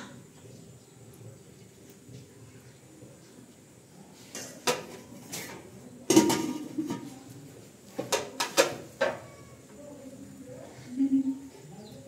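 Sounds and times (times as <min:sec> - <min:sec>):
plates set on metal tray: 0:04.3 - 0:07.2, 0:08.0 - 0:09.3.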